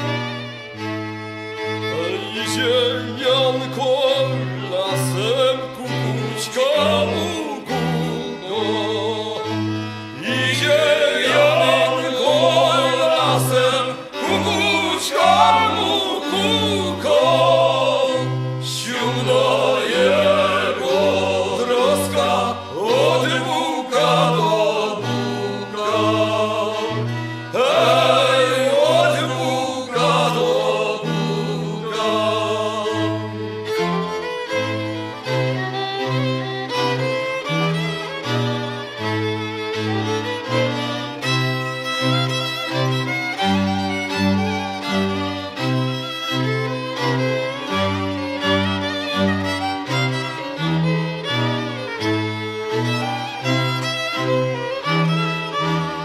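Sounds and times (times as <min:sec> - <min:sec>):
bowed strings: 0:00.0 - 0:56.0
voices singing: 0:02.0 - 0:09.5, 0:10.1 - 0:33.4.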